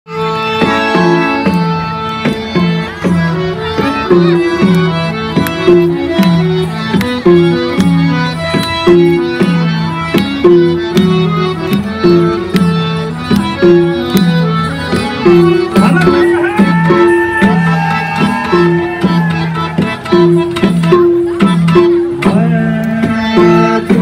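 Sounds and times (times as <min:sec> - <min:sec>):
folk melody of short notes: 0:00.1 - 0:24.0
drum beat: 0:00.6 - 0:24.0.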